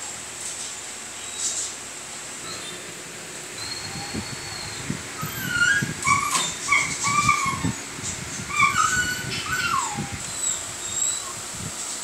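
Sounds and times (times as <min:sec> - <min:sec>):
puppy whining: 0:02.4 - 0:02.9, 0:03.5 - 0:11.4.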